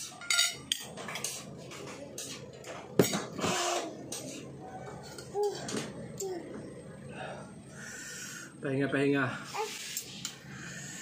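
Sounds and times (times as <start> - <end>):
fork clattering on plate: 0.0 - 3.3.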